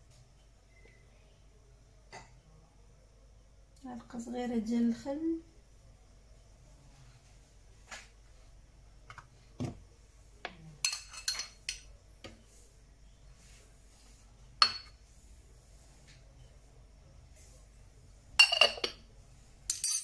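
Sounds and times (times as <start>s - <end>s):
metal spoon clinking on containers: 10.8s - 11.9s, 18.4s - 19.0s, 19.7s - 20.0s.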